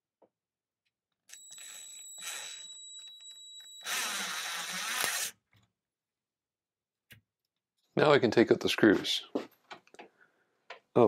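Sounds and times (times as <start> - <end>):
cordless drill whining: 1.3 - 5.4.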